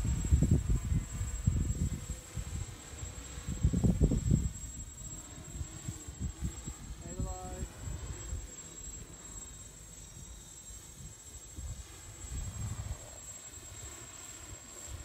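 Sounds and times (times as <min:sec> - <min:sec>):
wind rumble on microphone: 0:00.0 - 0:08.6, 0:10.8 - 0:13.8
drone propellers buzzing: 0:00.0 - 0:15.0.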